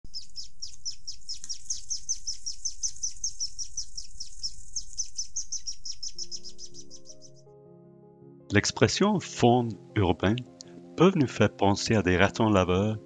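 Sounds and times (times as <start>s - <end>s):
swifts chittering: 0.1s - 7.5s
music: 5.9s - 13.0s.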